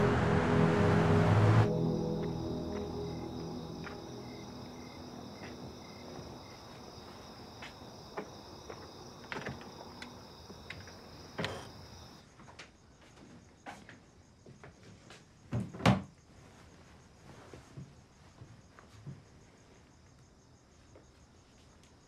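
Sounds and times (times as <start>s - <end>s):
held music chord: 0.0s - 7.4s
crickets chirping: 0.0s - 15.4s, 16.1s - 22.0s.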